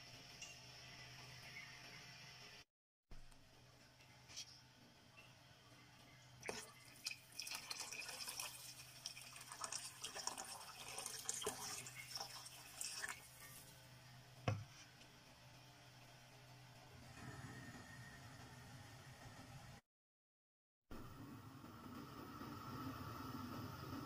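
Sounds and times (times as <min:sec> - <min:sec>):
water pouring into a pot: 0:06.4 - 0:13.7.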